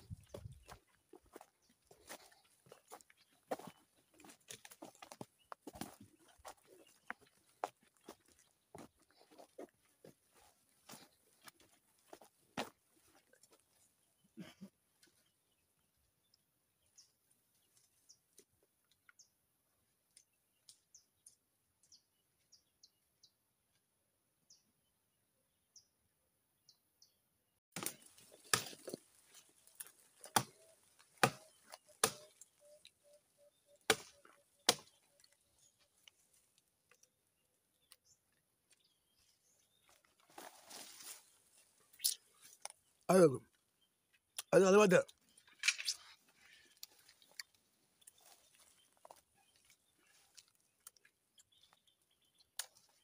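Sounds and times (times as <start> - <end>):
axe chopping into tree trunk: 27.8 - 29.0, 30.2 - 30.6, 31.2 - 32.3, 33.9 - 35.0
faint bird chirps: 30.6 - 35.8.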